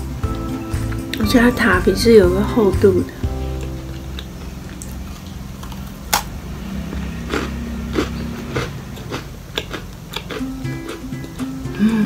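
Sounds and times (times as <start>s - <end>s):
crunchy bite and chewing: 3.6s - 11.4s.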